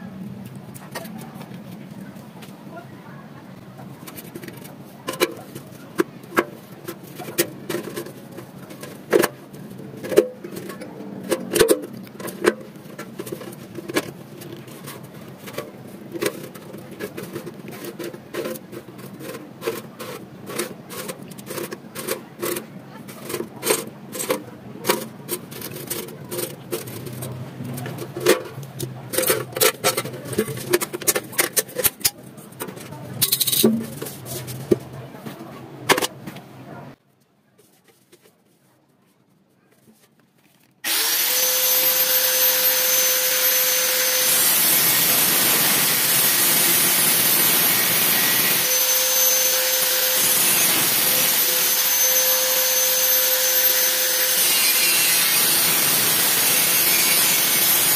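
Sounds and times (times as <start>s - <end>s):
clicks and knocks of parts: 4.0s - 34.9s
electric power tool whining: 40.8s - 57.9s.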